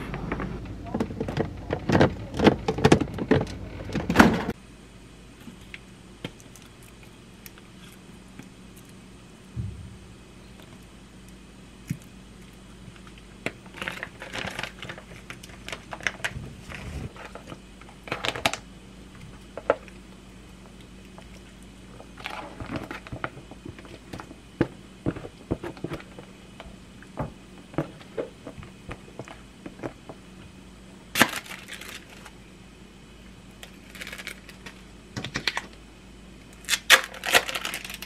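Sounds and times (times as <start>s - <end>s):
steady low hum: 0.0s - 38.0s
scraping and crinkling plastic: 12.5s - 30.2s, 31.1s - 32.4s, 33.6s - 35.8s, 36.6s - 38.0s.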